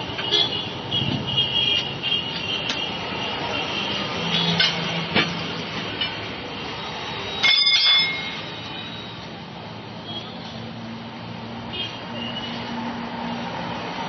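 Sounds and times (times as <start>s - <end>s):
traffic noise: 0.0s - 14.0s
metallic clank ringing: 7.3s - 8.5s
tyre lever clinking on metal rim: 7.4s - 8.4s.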